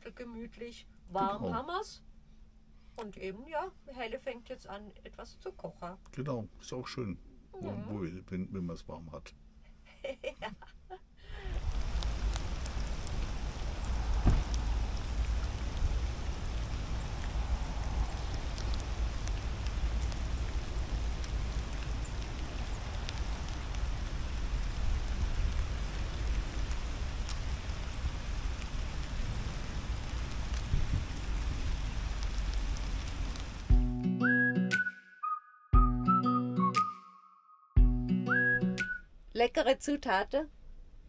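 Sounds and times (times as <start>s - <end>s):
constant low rumble: 0.0s - 33.8s
rain on gravel and puddles: 11.3s - 33.9s.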